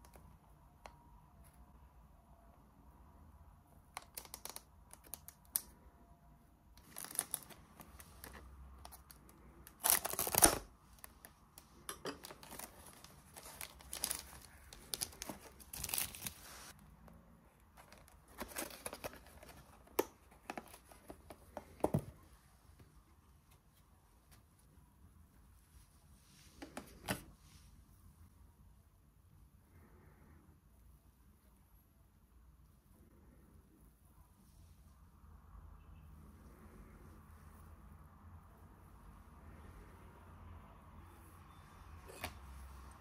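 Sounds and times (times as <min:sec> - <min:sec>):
plastic food pack crinkling: 0:06.8 - 0:08.4, 0:09.0 - 0:11.1, 0:12.0 - 0:16.7.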